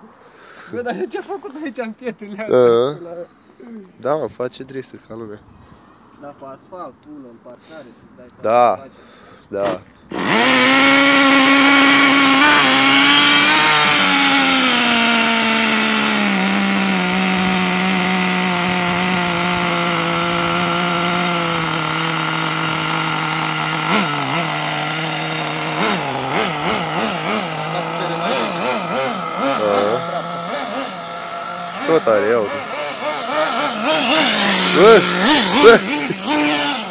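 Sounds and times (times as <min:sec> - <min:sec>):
engine throttle blips: 0:09.6 - 0:36.9
small engine buzzing: 0:09.6 - 0:36.9.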